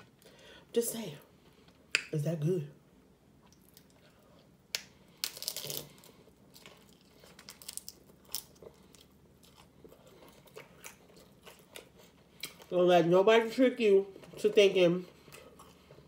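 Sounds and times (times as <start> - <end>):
crunching bite into taco shell: 4.8 - 12.7.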